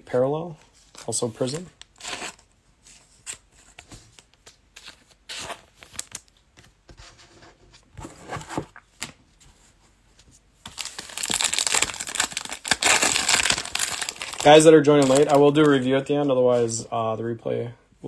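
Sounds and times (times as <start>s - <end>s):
foil wrapper crinkling and tearing: 10.7s - 15.9s.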